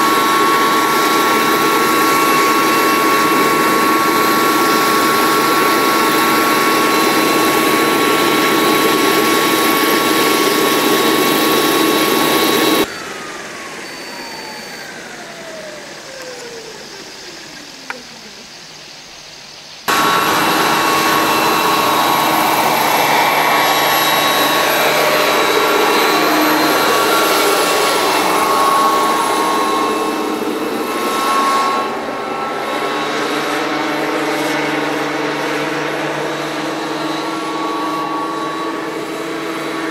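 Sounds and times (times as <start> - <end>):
model helicopter turbine whine: 0.0 - 39.9
click: 16.2 - 17.1, 17.8 - 18.0
tone falling in pitch: 19.9 - 31.9.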